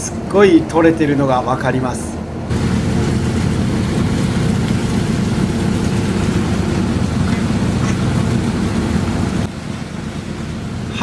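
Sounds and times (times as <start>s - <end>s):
boat engine drone: 0.0s - 11.0s
fish thrashing and splashing: 2.5s - 10.8s.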